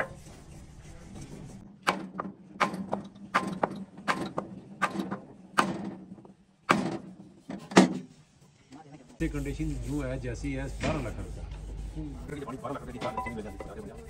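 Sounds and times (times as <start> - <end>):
sharp knocks: 1.8 - 6.1, 6.7 - 8.0
steady low hum: 9.2 - 14.0.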